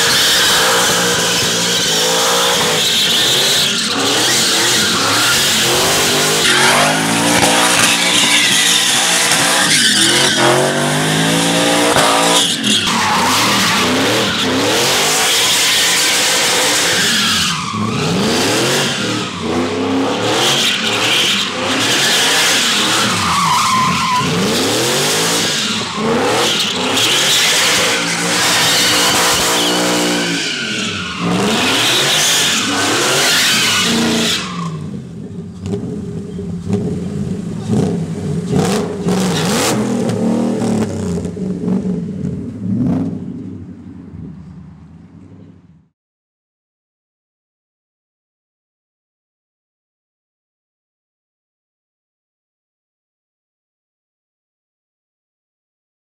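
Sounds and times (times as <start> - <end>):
engine revving: 0.0 - 12.5, 37.7 - 41.9
tires squealing and skidding: 0.0 - 35.0.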